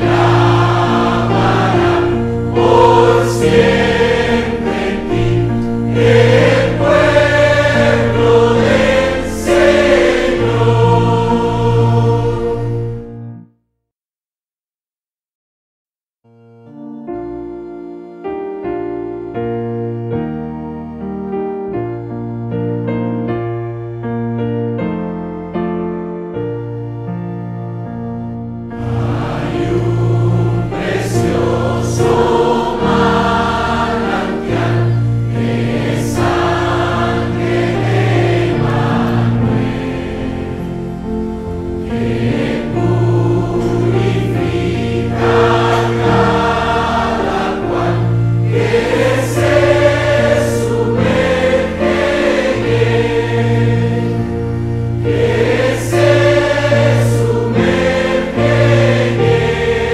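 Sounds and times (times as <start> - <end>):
choir singing a hymn: 0.0 - 13.2, 27.8 - 59.9.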